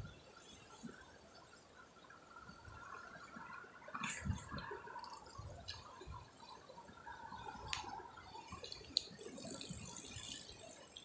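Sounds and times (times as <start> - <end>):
fishing reel whirring: 9.2 - 11.0.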